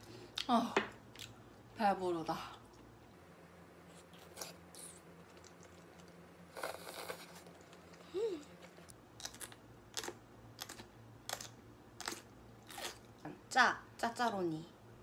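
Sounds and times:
wet slurping and chewing noodles: 0:04.0 - 0:13.0
crisp crunches of chewing: 0:04.0 - 0:13.1.

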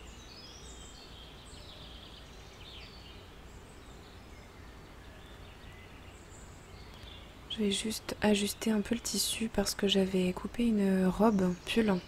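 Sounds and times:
low steady hum: 0:00.0 - 0:12.0
small birds chirping: 0:00.0 - 0:12.0.

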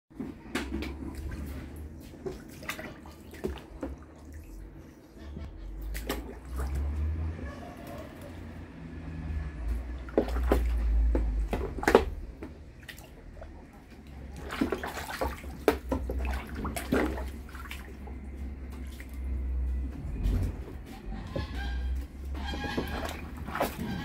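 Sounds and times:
low steady rumble: 0:00.2 - 0:24.0
geese splashing in water: 0:00.6 - 0:24.0.

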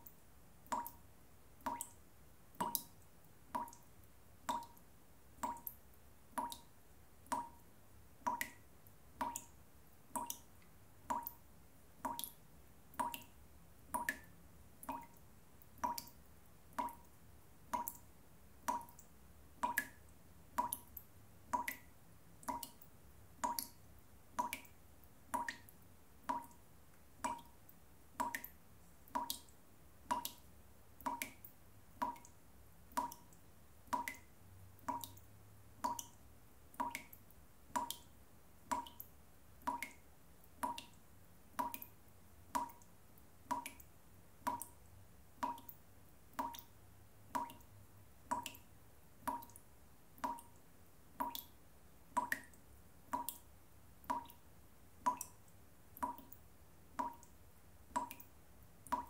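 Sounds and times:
tap dripping: 0:18.7 - 0:20.0, 0:25.4 - 0:26.6, 0:32.9 - 0:33.3, 0:33.9 - 0:34.2, 0:43.5 - 0:44.8, 0:52.2 - 0:53.4, 0:54.0 - 0:54.4, 0:56.0 - 0:56.4, 0:58.0 - 0:59.0.

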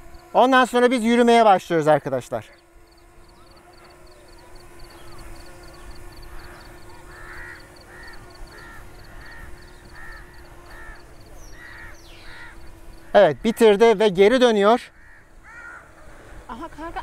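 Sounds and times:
faint steady hum: 0:00.0 - 0:17.0
crows cawing: 0:04.9 - 0:14.0, 0:14.8 - 0:16.5.

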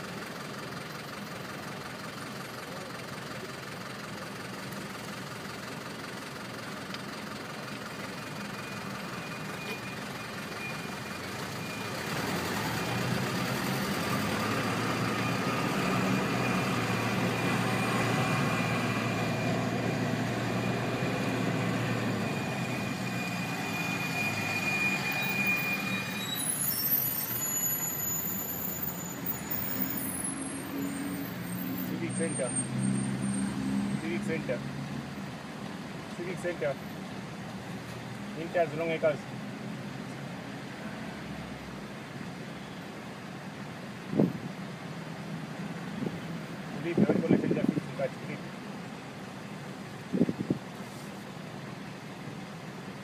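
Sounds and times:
engine running close by: 0:00.0 - 0:26.0
city street traffic: 0:00.0 - 0:53.0.

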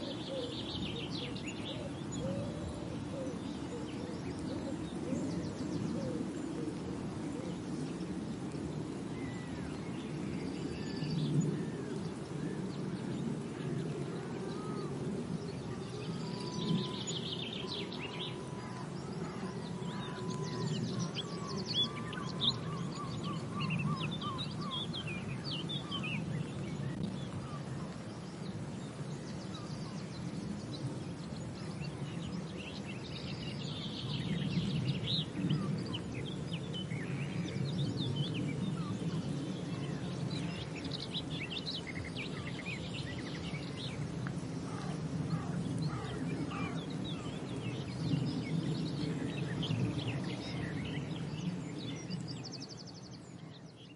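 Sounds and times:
wild birds chirping and calling: 0:00.0 - 0:08.3, 0:09.1 - 0:53.8
steady low background noise: 0:00.0 - 0:53.9.

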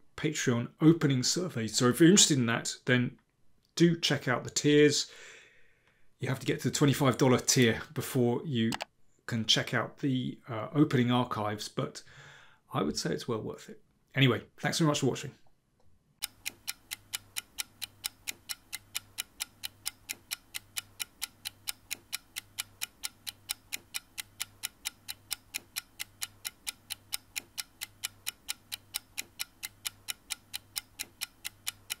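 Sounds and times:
clock-like ticking: 0:16.2 - 0:32.0.

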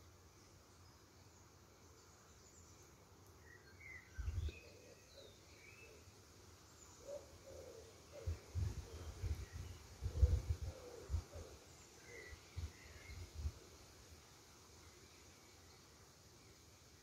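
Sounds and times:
small birds chirping: 0:00.2 - 0:13.4.

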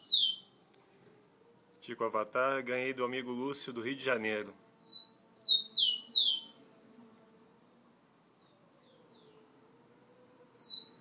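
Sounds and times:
sparrow singing whistles: 0:00.0 - 0:00.5, 0:04.7 - 0:06.6, 0:08.4 - 0:09.4, 0:10.5 - 0:11.0.

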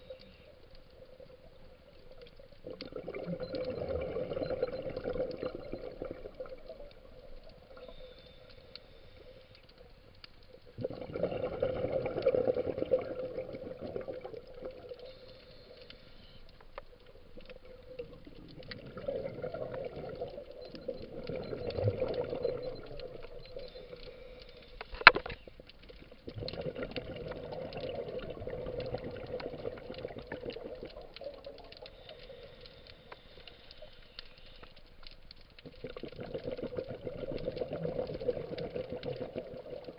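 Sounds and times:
exhaled bubbles from regulator: 0:02.6 - 0:06.9, 0:10.8 - 0:15.1, 0:17.6 - 0:24.1, 0:26.2 - 0:32.4, 0:35.7 - 0:39.9.

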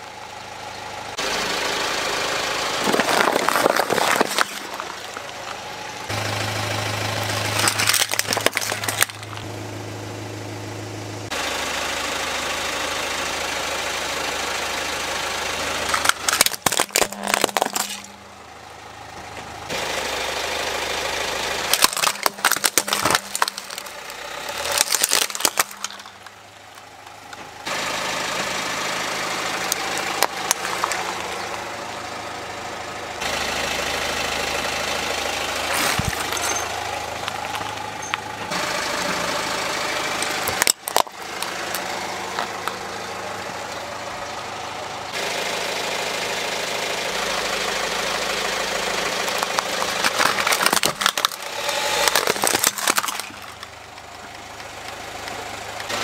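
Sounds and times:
car engine idling: 0:00.0 - 0:56.0
plastic toys cracking and crunching: 0:02.8 - 0:05.6, 0:07.3 - 0:09.5, 0:15.8 - 0:18.2, 0:21.7 - 0:27.4, 0:29.5 - 0:31.6, 0:35.6 - 0:37.9, 0:40.2 - 0:42.8, 0:49.0 - 0:54.7.

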